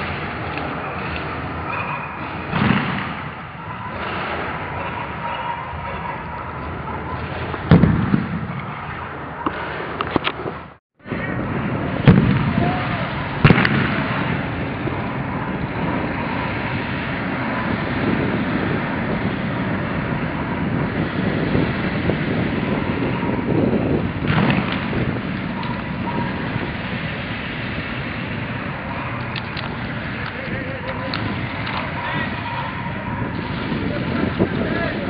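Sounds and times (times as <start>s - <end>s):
loud sharp bangs: 2.1s - 5.2s, 7.1s - 10.0s, 11.8s - 18.2s, 23.2s - 30.2s.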